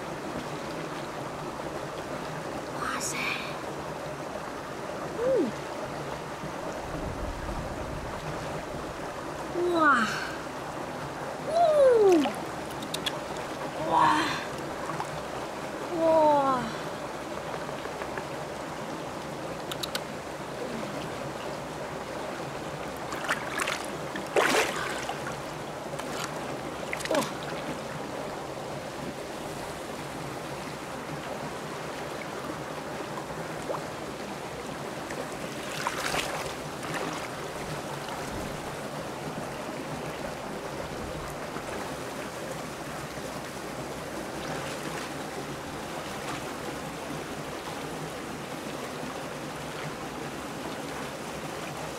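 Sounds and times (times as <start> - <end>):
shallow river water flowing: 0.0 - 51.9
splashes in water: 23.1 - 25.3, 35.6 - 37.4.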